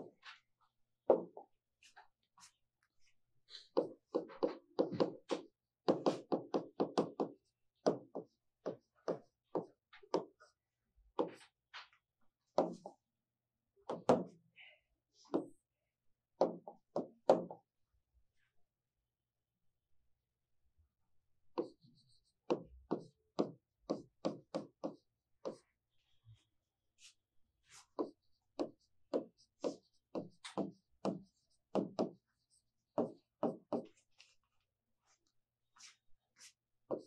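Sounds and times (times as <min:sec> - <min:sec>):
stylus tapping on screen: 0:03.8 - 0:10.4, 0:21.6 - 0:25.6, 0:28.0 - 0:34.0.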